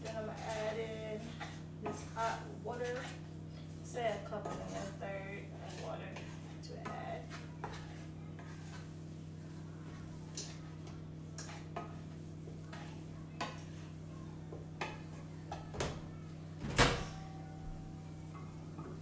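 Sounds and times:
spatula scraping frying pan: 0:00.0 - 0:14.1
steady low hum: 0:00.0 - 0:19.0.

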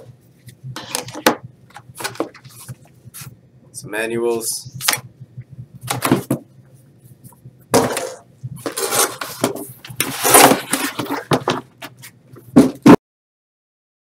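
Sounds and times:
cardboard scraping and rustling: 0:07.8 - 0:12.9.

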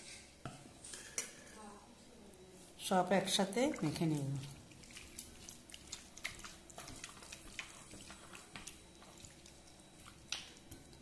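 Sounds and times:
wet squelches of kneading: 0:02.5 - 0:11.0.

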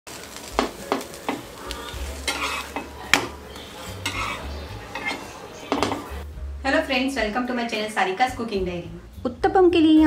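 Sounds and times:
batter sizzling: 0:00.1 - 0:06.4
spatula scraping a pan: 0:00.9 - 0:06.2.

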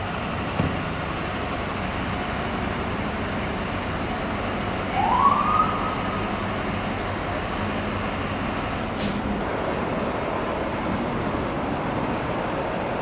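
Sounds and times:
diesel engines running: 0:00.0 - 0:13.0
street noise: 0:00.0 - 0:13.0
air brakes hissing: 0:08.9 - 0:09.4.

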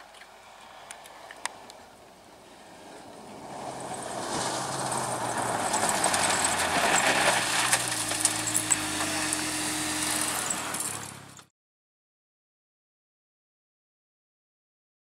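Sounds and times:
rally car engine: 0:02.6 - 0:11.5
tyres hissing on gravel: 0:02.6 - 0:11.5.

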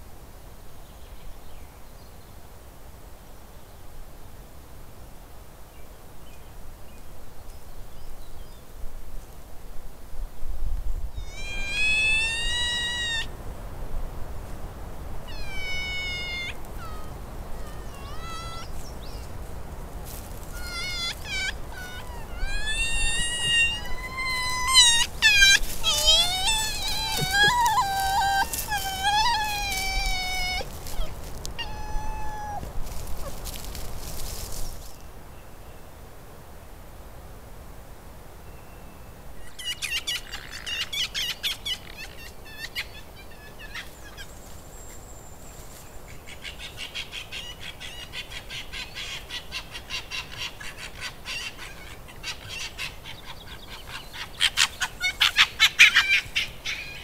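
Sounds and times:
fox whining calls: 0:11.2 - 0:13.3, 0:15.3 - 0:18.9, 0:20.4 - 0:33.8, 0:39.5 - 0:44.5, 0:46.1 - 0:57.0.

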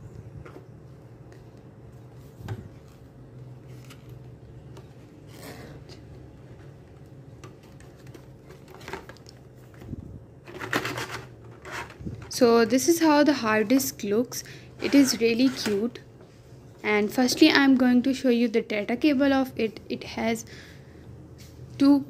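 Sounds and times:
paperboard box scraping: 0:10.6 - 0:12.3.

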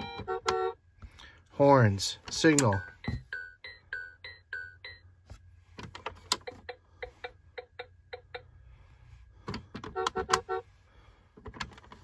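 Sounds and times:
electronic horn beep: 0:00.0 - 0:00.8, 0:09.8 - 0:10.8
toy turn-signal ticking: 0:06.4 - 0:08.5.

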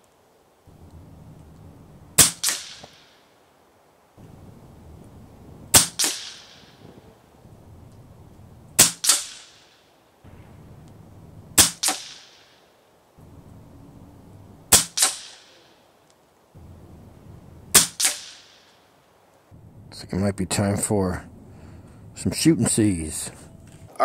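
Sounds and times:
air rifle shot crack: 0:02.2 - 0:03.2, 0:04.2 - 0:15.8, 0:16.6 - 0:18.9.

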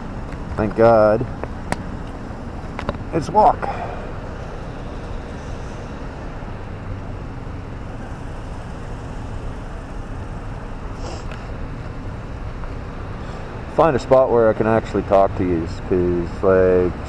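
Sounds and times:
motorcycle engine: 0:00.0 - 0:13.5.

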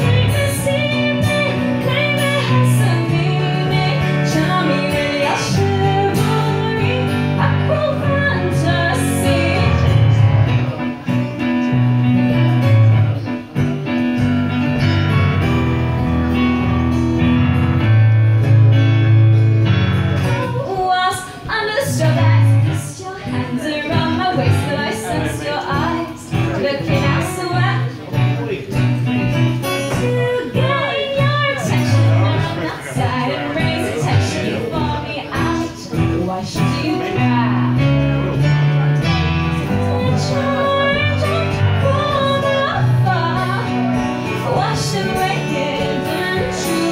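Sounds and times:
woman singing: 0:00.0 - 0:10.5, 0:20.3 - 0:28.0, 0:29.6 - 0:38.4, 0:39.0 - 0:46.9
electric keyboard: 0:00.0 - 0:21.4, 0:23.5 - 0:46.9
acoustic guitar: 0:00.0 - 0:46.9.

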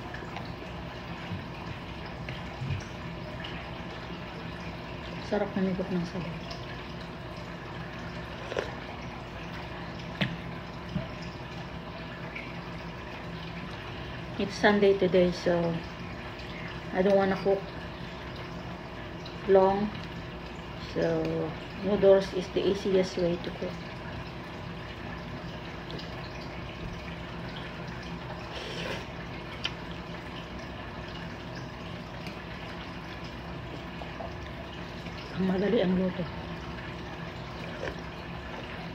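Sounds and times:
sipping broth: 0:08.2 - 0:09.0
slurping noodles: 0:08.4 - 0:08.8, 0:28.4 - 0:29.2.

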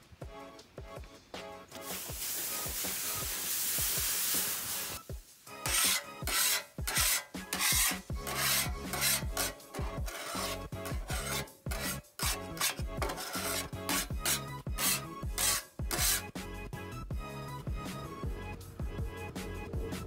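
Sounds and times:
water hissing on hot plate: 0:01.7 - 0:06.7
metal scraper scraping griddle: 0:05.6 - 0:16.4.

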